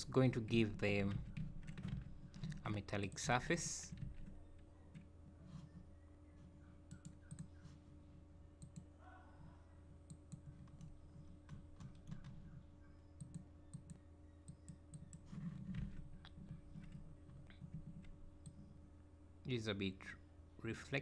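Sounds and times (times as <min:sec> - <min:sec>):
low electrical hum: 0:00.0 - 0:21.0
computer mouse and keyboard clicks: 0:10.1 - 0:12.6.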